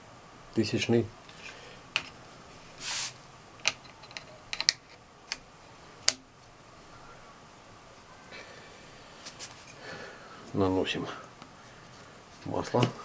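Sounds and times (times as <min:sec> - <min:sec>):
short rush of noise: 0:02.8 - 0:03.2.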